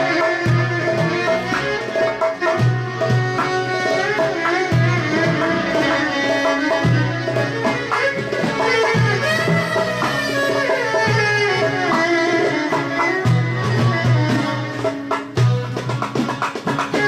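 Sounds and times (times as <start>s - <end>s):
percussion steady beat: 0.0s - 17.0s
violin melody with gliding notes: 0.0s - 17.0s.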